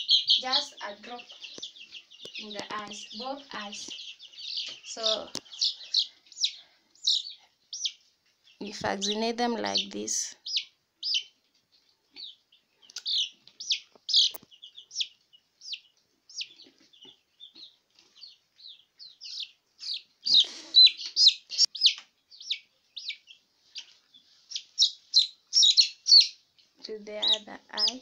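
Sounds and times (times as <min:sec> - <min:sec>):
chicks peeping: 0:00.0 - 0:28.0.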